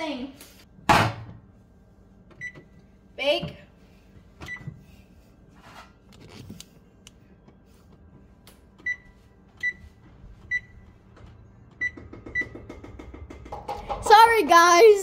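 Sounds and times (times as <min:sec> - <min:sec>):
oven keypad beeps: 0:02.4 - 0:02.7, 0:04.4 - 0:04.7, 0:08.8 - 0:09.8, 0:10.4 - 0:10.8, 0:11.8 - 0:12.6.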